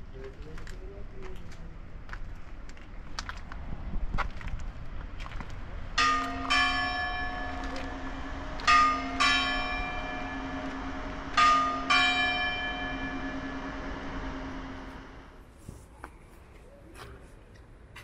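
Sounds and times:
church bells ringing: 0:06.0 - 0:15.4
low bell hum: 0:06.0 - 0:15.4.

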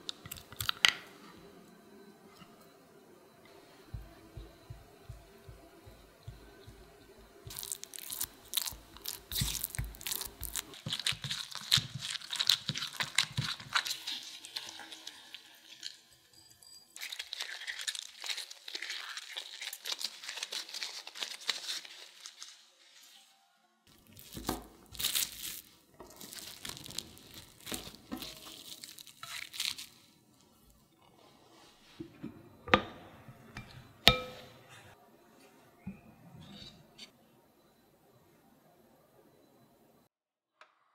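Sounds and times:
gloved hands kneading dough: 0:03.6 - 0:15.2, 0:23.9 - 0:31.6
wet crackling and squishing: 0:07.5 - 0:15.2, 0:23.9 - 0:30.0
plastic cling film crinkling: 0:07.5 - 0:16.0, 0:17.0 - 0:23.2, 0:23.9 - 0:30.2.

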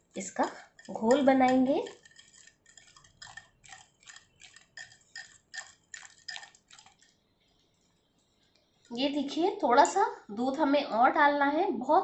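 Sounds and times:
whisk clicking against glass bowl: 0:00.4 - 0:07.1.

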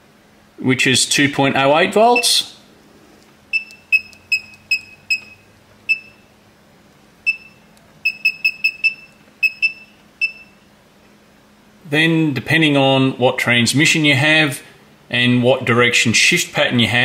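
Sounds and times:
short high touchscreen beeps: 0:03.5 - 0:06.2, 0:07.3 - 0:10.6.

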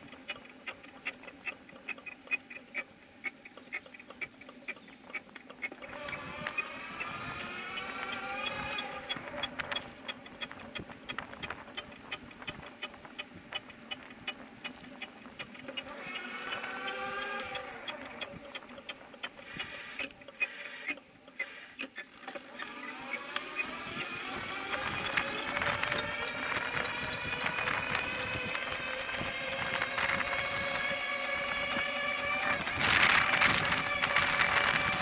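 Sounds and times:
bicycle wheel ticking: 0:00.0 - 0:35.0
wavering squeal: 0:05.8 - 0:09.9.

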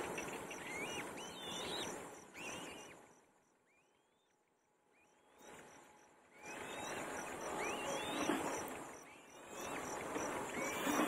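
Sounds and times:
nestlings whistling begging calls: 0:00.0 - 0:03.0, 0:06.3 - 0:11.0
faint insect chirping: 0:00.1 - 0:11.0.

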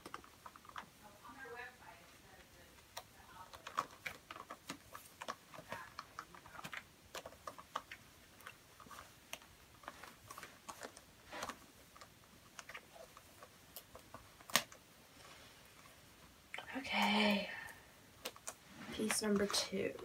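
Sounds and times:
fabric rustling: 0:07.8 - 0:12.0, 0:18.6 - 0:20.0.

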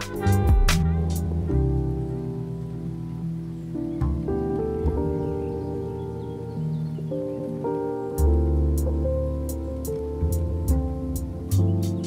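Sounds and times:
deep bass note: 0:00.0 - 0:02.3
gentle instrumental music: 0:00.0 - 0:12.0
light high percussion ticks: 0:08.2 - 0:12.0.

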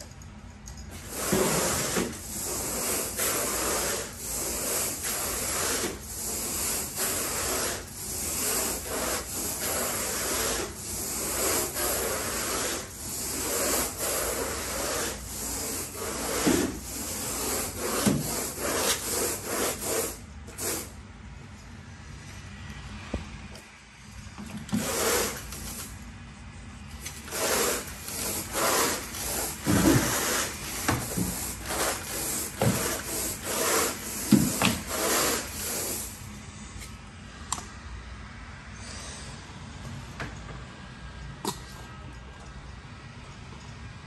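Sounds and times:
rake rasping across carpet: 0:00.9 - 0:21.0, 0:24.7 - 0:26.0, 0:27.0 - 0:37.0.

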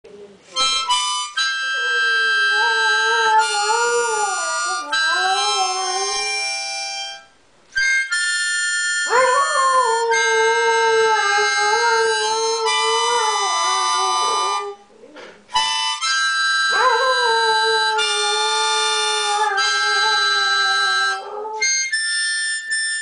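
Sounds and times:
harmonica chords: 0:00.6 - 0:14.8, 0:15.5 - 0:23.0
dog howling: 0:01.8 - 0:06.4.

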